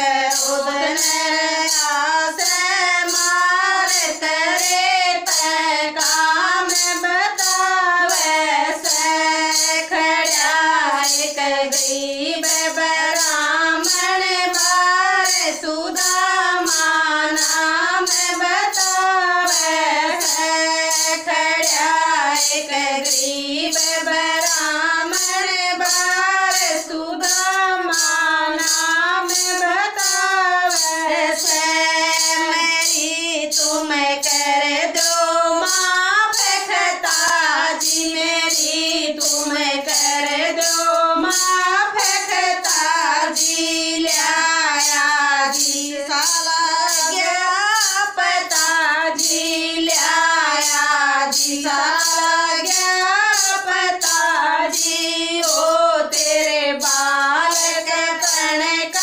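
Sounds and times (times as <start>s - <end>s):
women singing devotional song: 0.0s - 59.0s.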